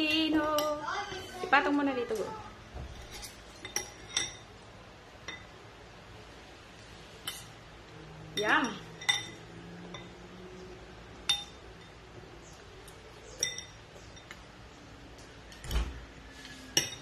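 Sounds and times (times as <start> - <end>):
spoons clinking on glass bowl: 3.0 - 4.6, 7.2 - 7.5, 8.4 - 10.2, 11.2 - 12.0, 13.3 - 14.4, 16.7 - 17.0.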